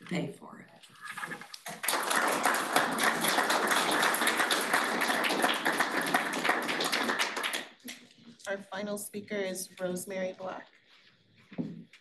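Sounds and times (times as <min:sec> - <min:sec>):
small audience clapping: 0:01.2 - 0:08.2.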